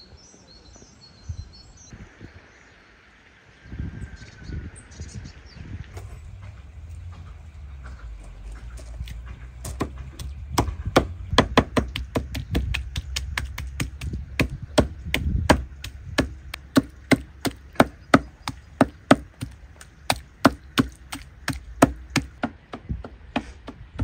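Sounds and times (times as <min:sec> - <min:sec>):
cleaver chopping meat on wood: 0:09.3 - 0:24.0.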